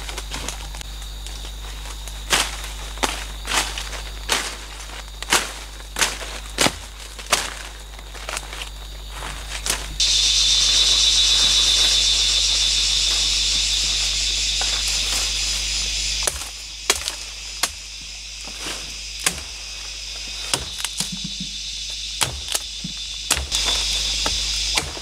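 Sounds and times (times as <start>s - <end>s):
insects droning: 0.0s - 25.0s
machete chopping bamboo: 16.2s - 17.8s, 19.2s - 19.6s, 20.5s - 21.3s, 22.2s - 25.0s
sharp knocks and snaps: 16.2s - 18.0s, 20.4s - 21.6s, 22.2s - 25.0s.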